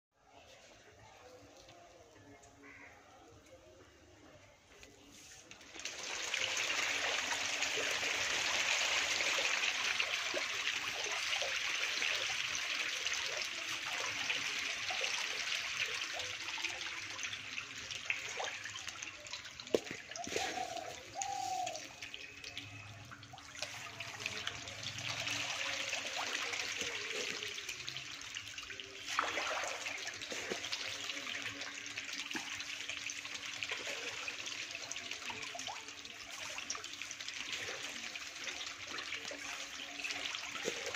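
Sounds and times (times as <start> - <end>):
fish thrashing and splashing in water: 22.2 - 34.7.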